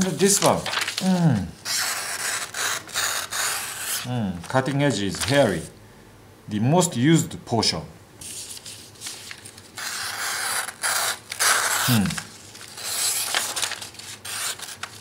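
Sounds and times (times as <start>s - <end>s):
knife slicing paper: 8.2s - 15.0s.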